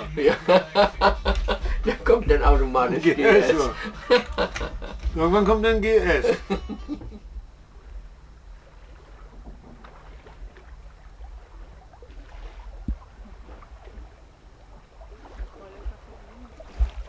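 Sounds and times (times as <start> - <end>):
faint steady rush: 0.0 - 17.0
wind rumbling on microphone: 7.0 - 17.0.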